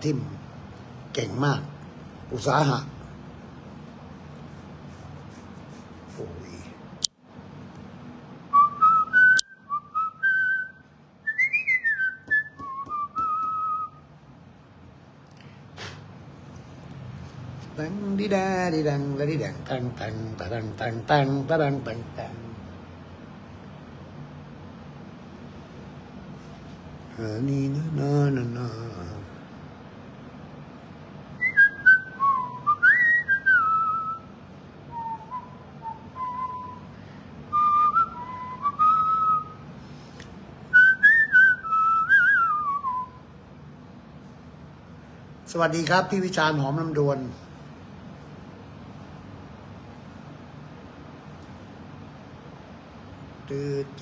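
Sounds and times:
person whistling tune: 0:08.6 - 0:14.0, 0:31.4 - 0:34.2, 0:34.9 - 0:36.9, 0:40.7 - 0:43.2.

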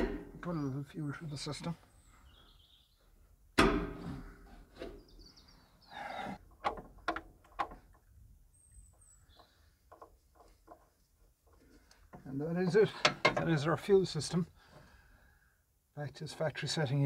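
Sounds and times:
birds chirping faintly: 0:00.0 - 0:17.0
light clicks and knocks: 0:06.5 - 0:08.1, 0:08.9 - 0:13.7.

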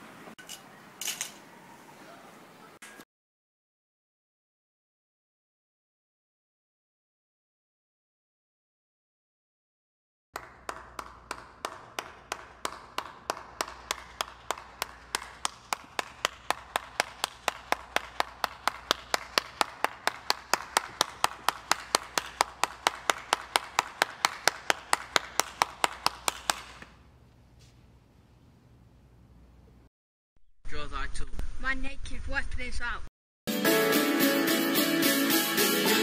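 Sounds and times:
hands clapping slowly: 0:10.4 - 0:27.0.

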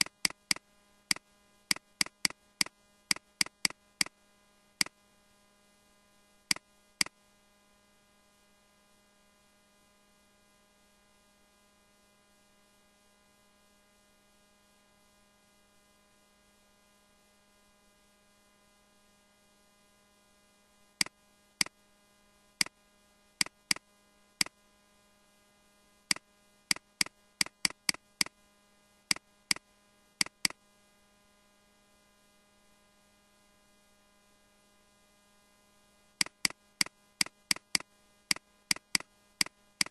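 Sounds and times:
faint electrical hum: 0:00.0 - 0:39.9
sharp single clicks: 0:26.1 - 0:28.4, 0:30.2 - 0:30.6, 0:36.2 - 0:39.9.

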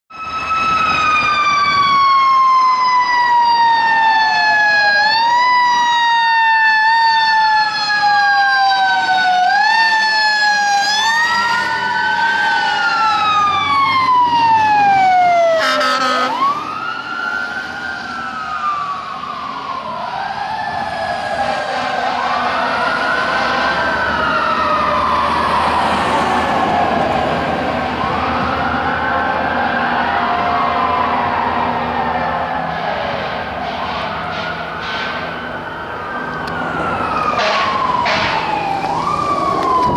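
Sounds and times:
fire truck sirens: 0:00.1 - 0:39.9
short horn blast: 0:15.6 - 0:16.4, 0:37.4 - 0:38.4.

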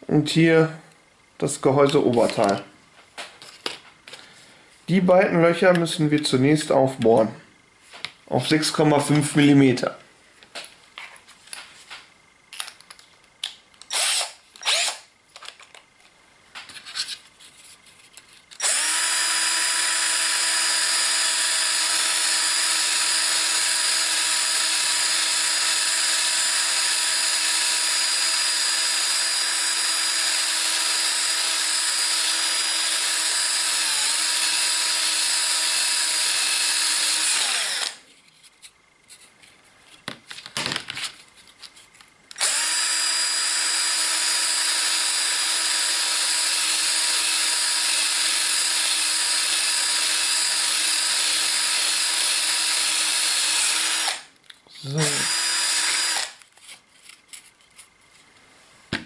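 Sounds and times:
electric drill boring into plastic: 0:13.9 - 0:15.1, 0:18.5 - 0:38.0, 0:42.3 - 0:54.3, 0:55.0 - 0:56.4.

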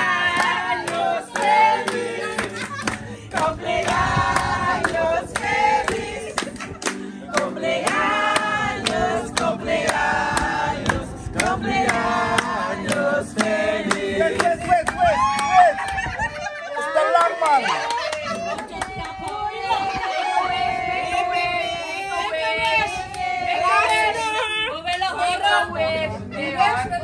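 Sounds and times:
group of people singing: 0:00.0 - 0:14.8, 0:18.6 - 0:27.0
hands clapping: 0:00.4 - 0:10.0, 0:10.8 - 0:16.1, 0:17.2 - 0:19.4.

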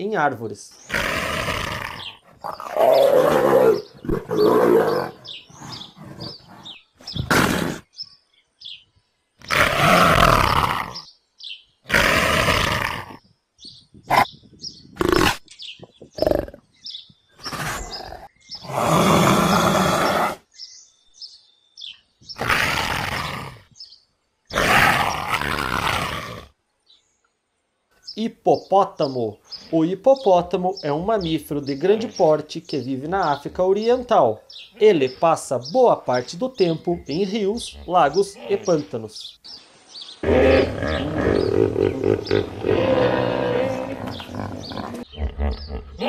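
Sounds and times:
leopard growling and roaring: 0:00.9 - 0:07.9, 0:09.4 - 0:11.1, 0:11.9 - 0:13.2, 0:15.0 - 0:15.5, 0:16.1 - 0:16.7, 0:17.4 - 0:20.5, 0:22.4 - 0:23.8, 0:24.5 - 0:26.6, 0:40.2 - 0:46.0.

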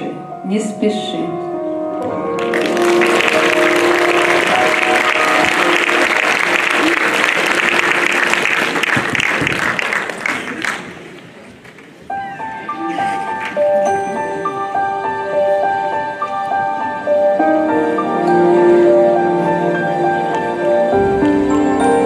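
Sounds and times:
audience applauding: 0:02.3 - 0:12.0
instrumental background music: 0:12.1 - 0:22.0.

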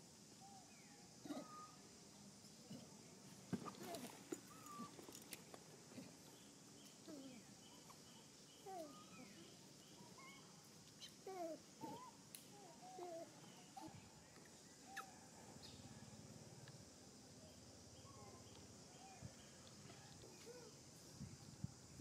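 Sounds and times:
faint animal calls: 0:00.4 - 0:01.9, 0:03.6 - 0:05.2, 0:07.0 - 0:14.2, 0:14.8 - 0:16.2.

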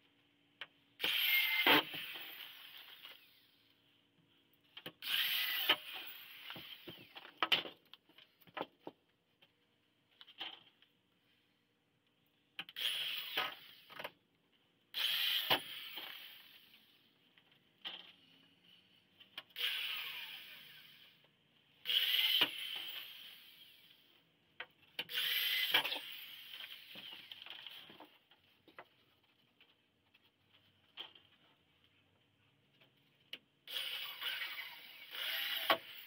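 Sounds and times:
power drill driving screws: 0:01.0 - 0:03.5, 0:05.0 - 0:07.3, 0:12.7 - 0:14.0, 0:15.0 - 0:16.9, 0:19.6 - 0:21.2, 0:21.8 - 0:24.0, 0:25.0 - 0:27.8, 0:33.7 - 0:36.0.

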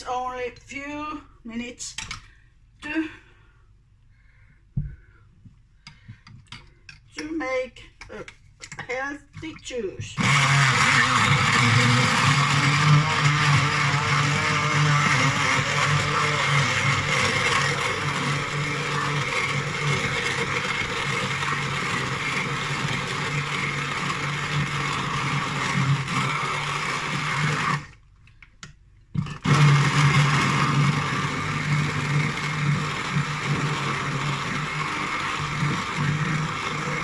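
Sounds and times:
immersion blender chopping: 0:10.2 - 0:28.0, 0:29.2 - 0:37.0.

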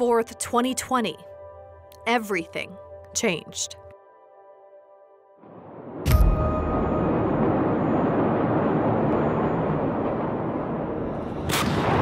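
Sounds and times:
distant fire rumbling: 0:05.4 - 0:12.0
sharp crack: 0:10.7 - 0:12.0.

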